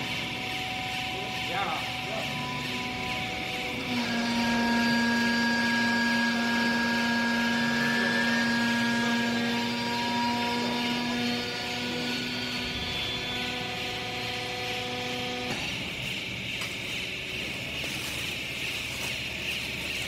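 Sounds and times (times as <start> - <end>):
whine and hiss: 0.0 - 8.5
hydraulic baler motor hum: 0.0 - 20.0.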